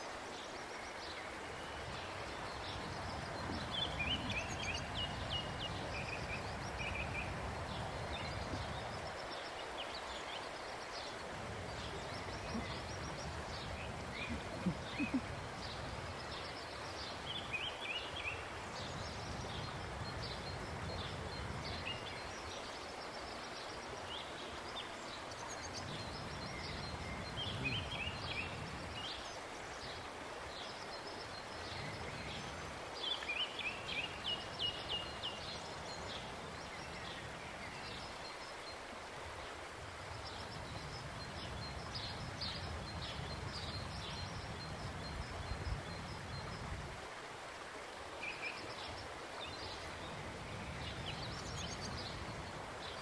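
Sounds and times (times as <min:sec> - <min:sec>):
small birds chirping: 0:00.0 - 0:30.0.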